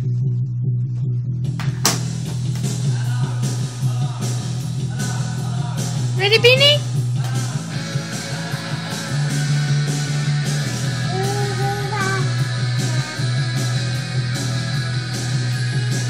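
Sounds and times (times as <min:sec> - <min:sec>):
rock music with guitar: 0:01.6 - 0:16.0
person singing or humming: 0:11.0 - 0:13.7.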